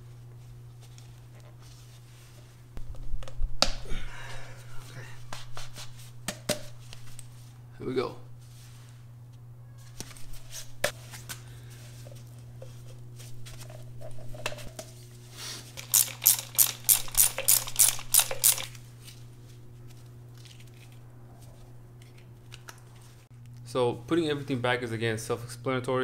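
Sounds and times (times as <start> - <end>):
steady low hum: 0.0 - 26.0
plastic parts rustling: 15.8 - 19.2.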